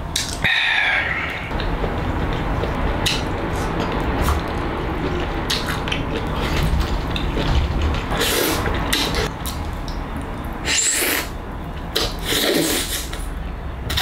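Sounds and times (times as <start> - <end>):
steady low hum: 0.0 - 14.0
man slurping and chewing: 7.9 - 9.3, 10.6 - 13.3.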